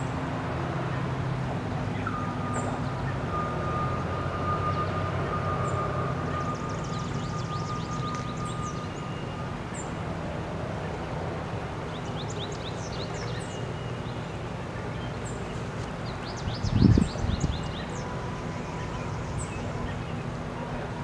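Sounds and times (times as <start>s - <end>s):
small birds chirping: 5.6s - 10.0s, 11.8s - 20.5s.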